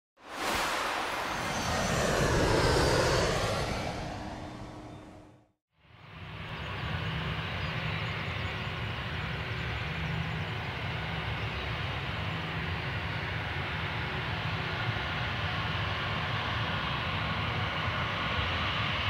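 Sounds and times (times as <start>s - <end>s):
jet engines rumbling and hissing: 0.2s - 5.6s.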